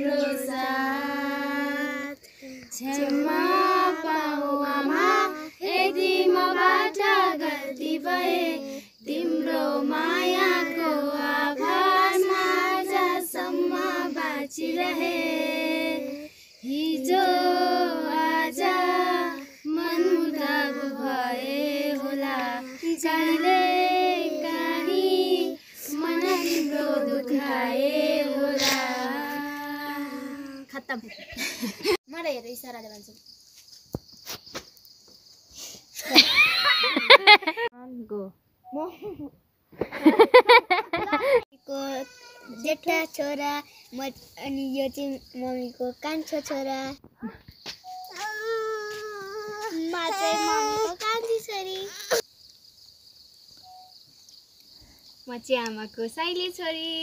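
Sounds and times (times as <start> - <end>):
women and children singing: 0.0 - 30.7.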